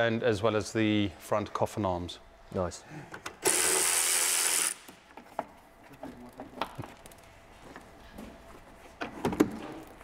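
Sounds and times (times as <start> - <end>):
power tool: 3.4 - 4.9.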